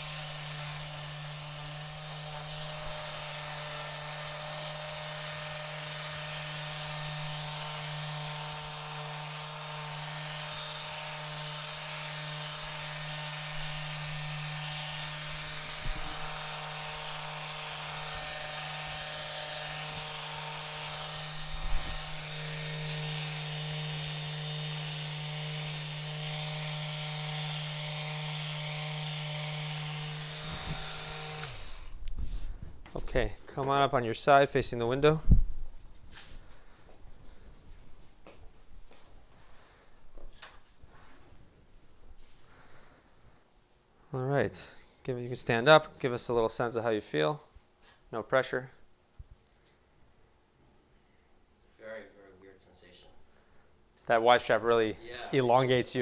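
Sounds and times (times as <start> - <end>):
electric massage device buzzing: 0.0 - 32.0.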